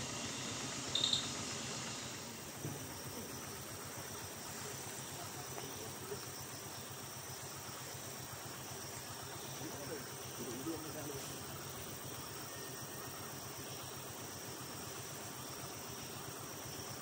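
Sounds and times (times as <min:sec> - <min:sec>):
insect drone: 0:00.0 - 0:17.0
high chirp: 0:01.0 - 0:01.3.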